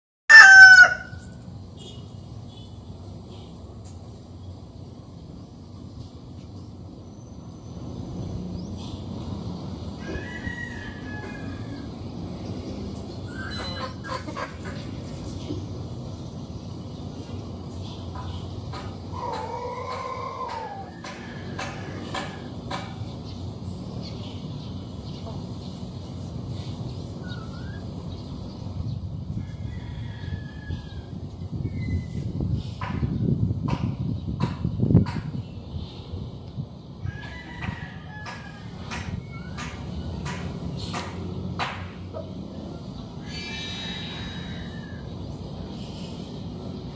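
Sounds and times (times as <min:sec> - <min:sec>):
rooster crowing: 0:00.3 - 0:01.3, 0:10.0 - 0:11.9, 0:19.1 - 0:21.8, 0:29.4 - 0:31.2, 0:37.0 - 0:38.8, 0:43.3 - 0:45.1
chickens: 0:13.3 - 0:15.5, 0:18.2 - 0:22.8.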